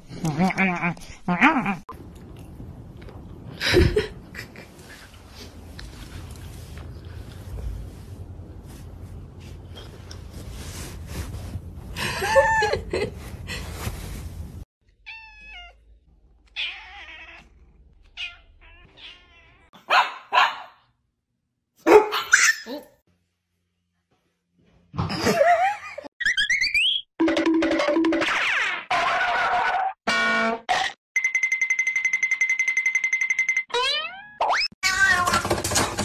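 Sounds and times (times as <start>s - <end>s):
cats meowing: 16.5s - 19.7s, 33.8s - 35.5s.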